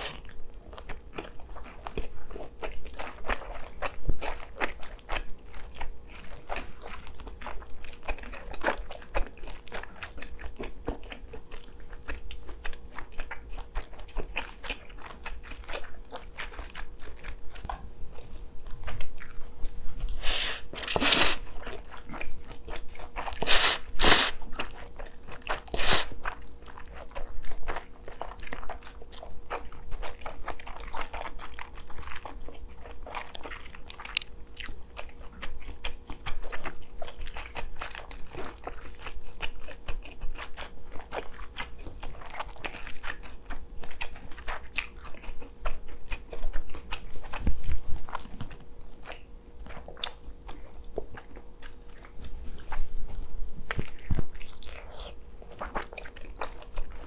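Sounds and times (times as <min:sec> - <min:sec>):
chewing and biting: 0:00.0 - 0:57.0
loud slurps of noodles: 0:20.2 - 0:21.4, 0:23.4 - 0:24.4, 0:25.8 - 0:26.1.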